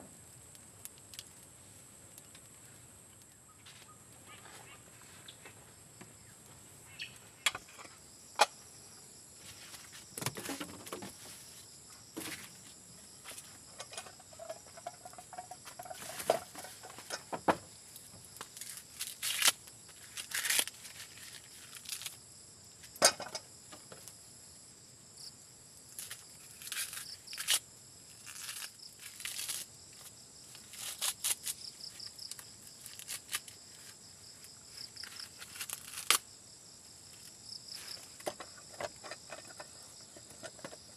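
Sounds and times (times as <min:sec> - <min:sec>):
insects trilling: 0:00.0 - 0:40.9
corn husks being torn: 0:18.4 - 0:22.2, 0:25.9 - 0:36.3.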